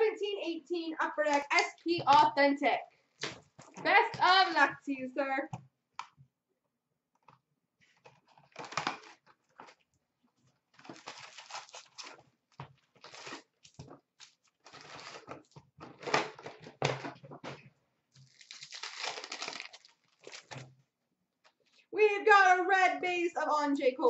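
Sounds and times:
wrapped packs rustling and crinkling: 10.8 - 15.5, 18.2 - 20.7
cardboard box tearing open: 18.3 - 20.5.

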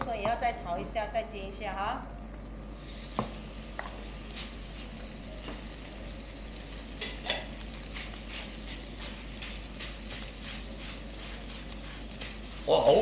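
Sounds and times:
meat sizzling in a wok: 2.6 - 13.0.

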